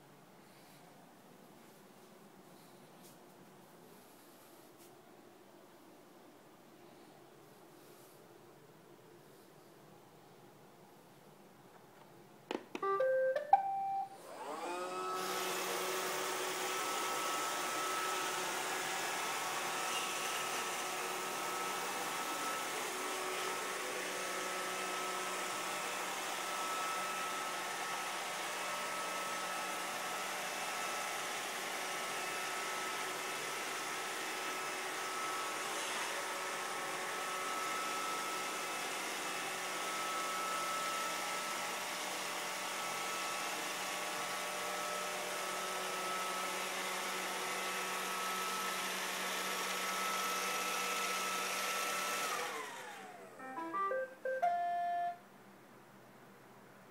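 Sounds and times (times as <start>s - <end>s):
robot vacuum whirring: 14.2s - 53.4s
electronic beeps: 53.4s - 55.2s.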